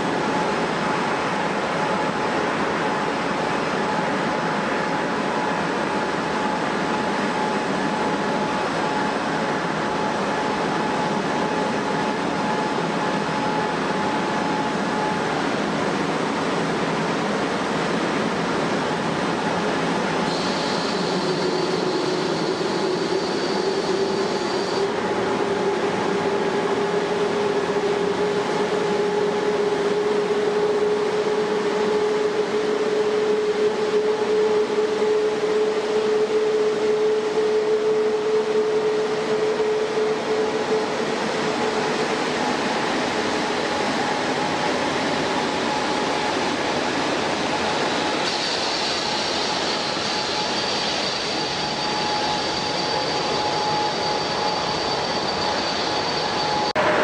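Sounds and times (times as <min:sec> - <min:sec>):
jet engines running: 0:00.0 - 0:57.0.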